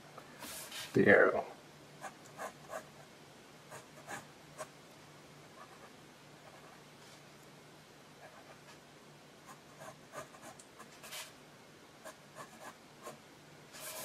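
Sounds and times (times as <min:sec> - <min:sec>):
faint low hum: 0:00.0 - 0:14.0
pen scratching on paper: 0:09.5 - 0:11.3, 0:12.0 - 0:13.2, 0:13.8 - 0:14.0.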